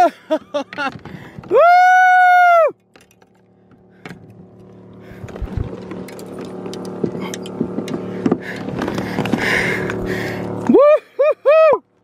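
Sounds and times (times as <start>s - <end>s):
steady low hum: 0.0s - 12.0s
fishing gear clicks and knocks: 2.8s - 10.7s.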